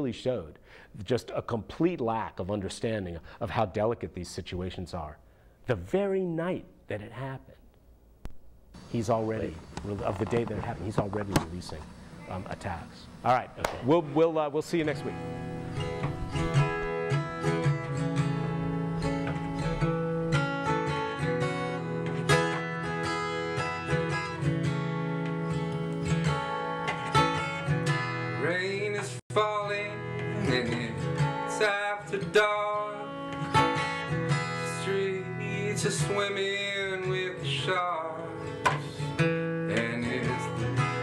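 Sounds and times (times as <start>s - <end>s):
acoustic guitar strumming: 13.8s - 41.0s.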